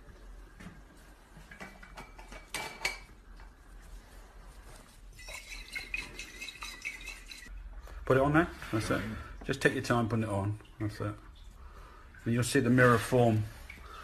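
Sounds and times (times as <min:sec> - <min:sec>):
glassware clinking: 0:05.2 - 0:07.5.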